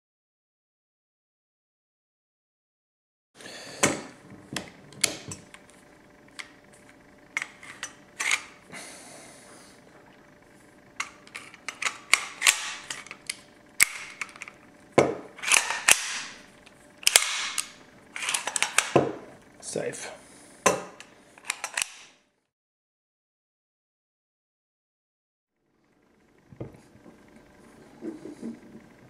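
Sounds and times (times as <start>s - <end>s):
gun metal clicks and clacks: 21.4s - 22.0s.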